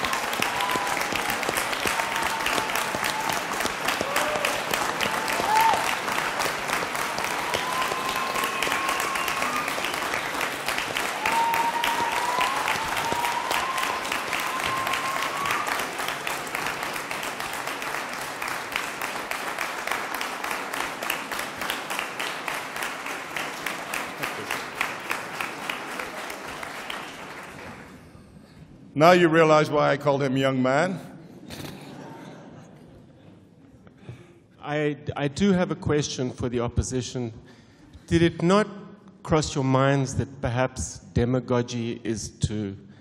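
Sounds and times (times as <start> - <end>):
audience applauding: 0.0 - 28.2.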